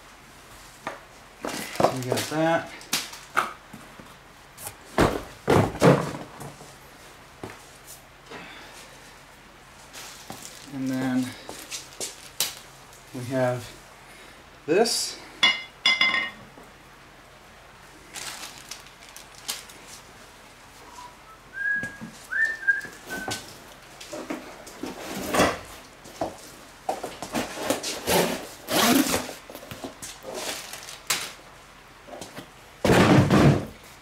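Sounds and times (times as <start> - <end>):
faint whistle-like notes: 20.8 - 23.4.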